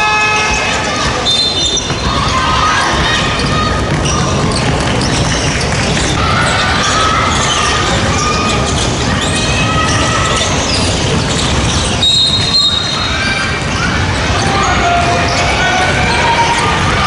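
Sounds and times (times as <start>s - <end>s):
referee's whistle: 0.0s - 1.9s, 12.0s - 13.3s
shoe squeaks: 0.0s - 16.7s
players calling out: 0.0s - 17.0s.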